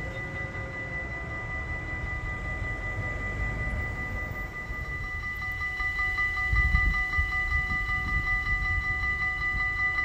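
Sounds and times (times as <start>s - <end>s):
locomotive high-pitched whine: 0.0s - 10.0s.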